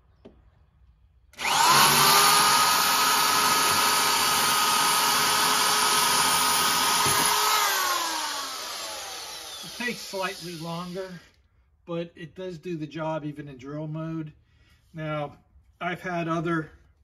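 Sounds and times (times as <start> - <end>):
drill boring into concrete: 1.4 - 11.4.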